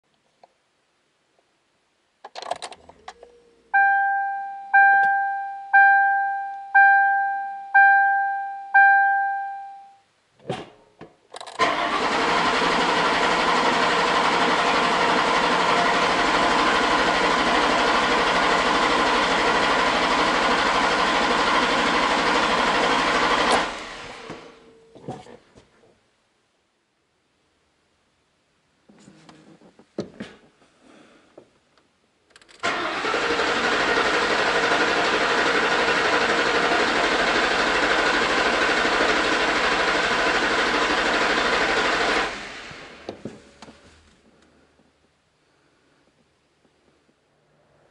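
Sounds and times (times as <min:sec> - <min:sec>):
dashboard warning chime bonging: 0:03.7 - 0:10.1
car starter cranking engine: 0:11.4 - 0:24.6, 0:32.4 - 0:43.1.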